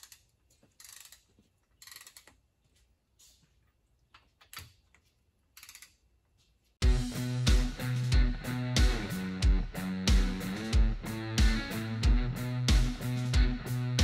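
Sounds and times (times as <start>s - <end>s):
torque wrench ratchet clicking: 0.0s - 2.4s, 5.6s - 6.0s
music: 6.8s - 14.0s.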